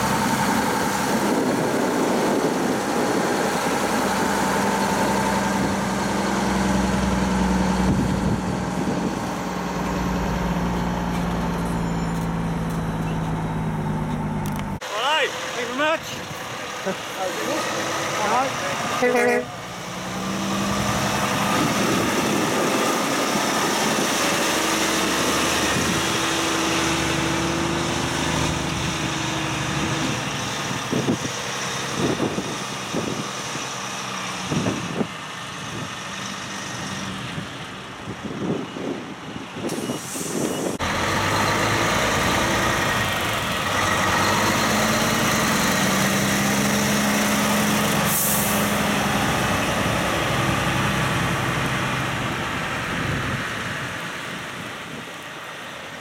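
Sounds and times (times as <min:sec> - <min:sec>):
truck diesel engines droning: 0:00.0 - 0:56.0
truck engine idling: 0:40.3 - 0:55.2.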